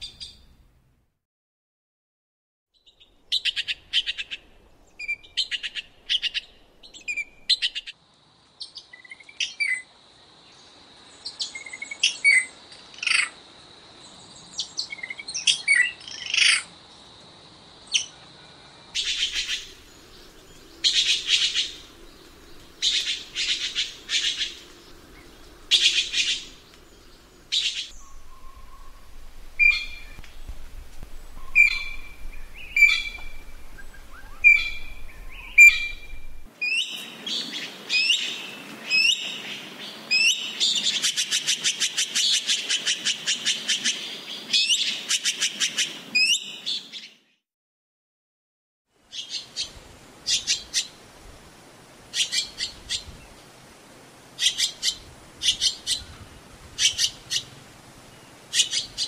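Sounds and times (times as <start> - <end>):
magpie calling: 19.0 - 19.8, 20.8 - 22.0, 22.8 - 24.7, 25.7 - 26.6, 27.5 - 30.2, 31.4 - 37.0, 54.4 - 56.1, 56.8 - 57.5, 58.5 - 59.0.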